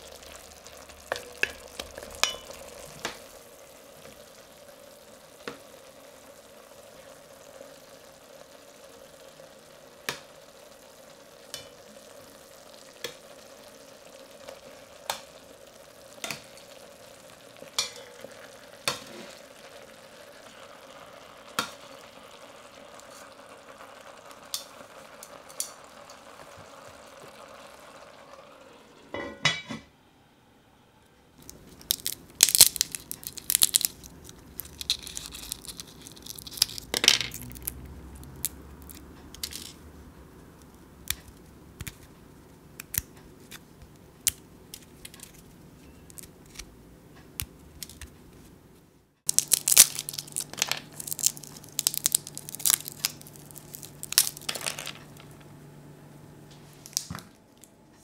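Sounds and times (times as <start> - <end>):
chicken sizzling in a pot: 0.0 - 29.8, 31.4 - 41.8, 49.3 - 55.6
chestnut shells cracking: 31.4 - 39.8, 40.6 - 45.4, 46.0 - 48.2, 49.3 - 55.4, 56.8 - 57.2.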